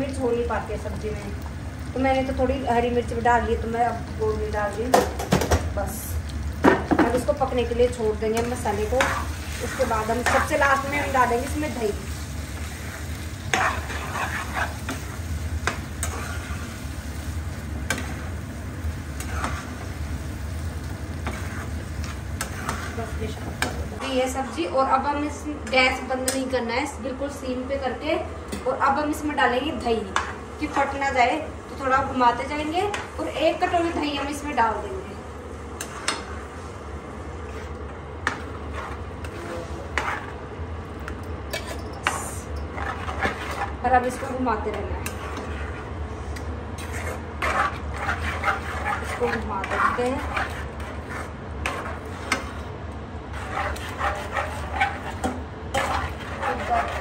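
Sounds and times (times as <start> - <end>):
light sizzle: 0.0 - 57.0
spoon stirring and scraping pan: 6.6 - 24.7, 28.5 - 31.2, 31.8 - 34.8, 35.5 - 57.0.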